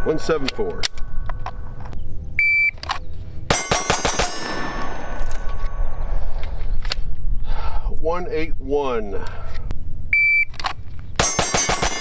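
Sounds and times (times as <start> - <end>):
steel targets ringing: 0.0 - 1.2, 3.5 - 6.1, 11.2 - 12.0
rapid pistol shots: 3.5 - 4.8, 11.2 - 12.0.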